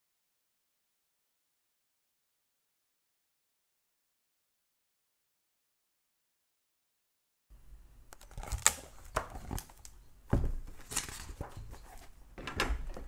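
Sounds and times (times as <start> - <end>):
objects rustling and clicking on desk: 8.2 - 13.0.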